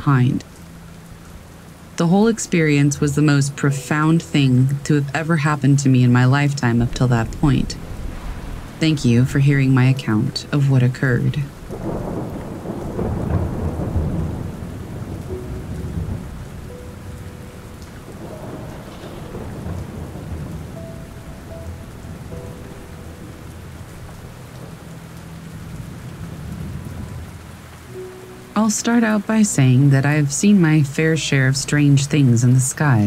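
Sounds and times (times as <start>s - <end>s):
steady rain: 0.0s - 33.0s
rolling thunder rumble: 6.2s - 28.1s.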